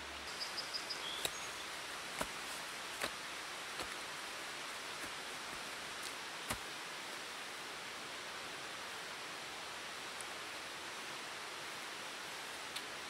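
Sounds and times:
steady background hiss: 0.0s - 13.0s
hatchet chopping into soil: 1.0s - 1.4s, 2.1s - 2.4s, 3.0s - 3.2s, 3.8s - 4.0s.

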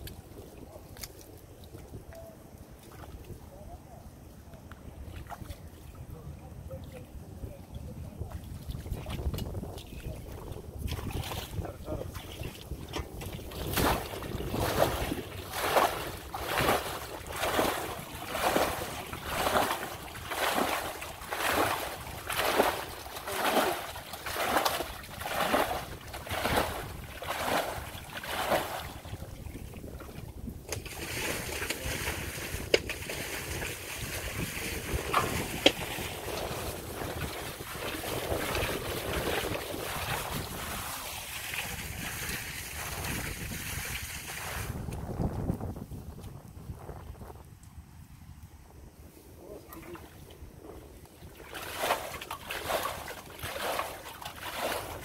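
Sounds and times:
water splashing from bailing: 10.1s - 44.8s, 51.2s - 55.0s.

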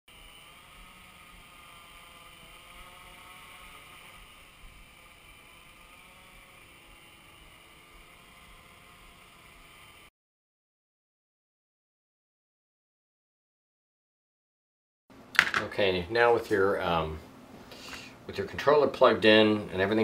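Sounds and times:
drone propellers whirring: 0.1s - 10.1s.

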